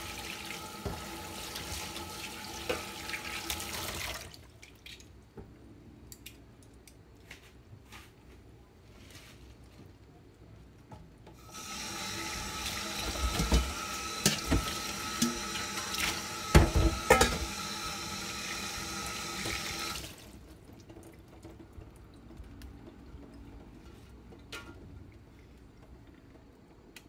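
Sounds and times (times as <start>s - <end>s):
tap running into sink: 0.8s - 1.2s, 11.6s - 17.7s
metal colander clattering: 13.0s - 17.6s.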